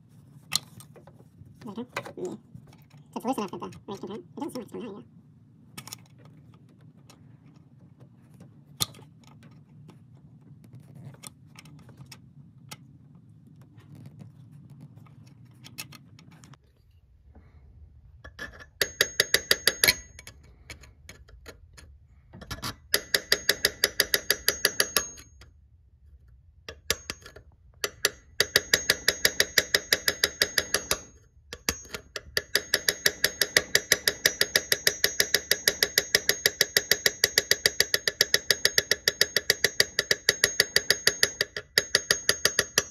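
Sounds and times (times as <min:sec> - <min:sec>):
metal punch tapping on bolt: 0:18.3 - 0:21.6, 0:22.4 - 0:25.4, 0:26.7 - 0:42.9.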